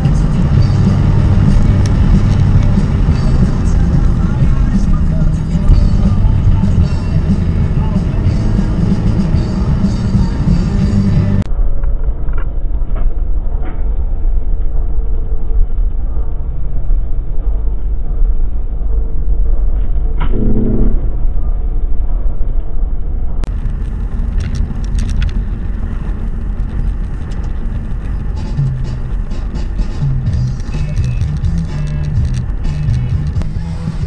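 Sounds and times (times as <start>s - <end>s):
car road and engine rumble: 0.0s - 34.0s
brief pitched sound: 20.2s - 21.3s.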